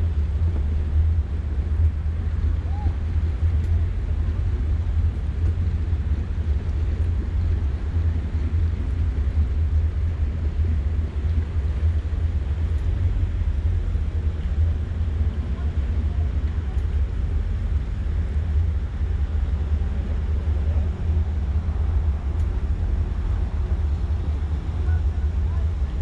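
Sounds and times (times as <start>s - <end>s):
boat engine idling: 0.0s - 26.0s
wind buffeting microphone: 0.0s - 26.0s.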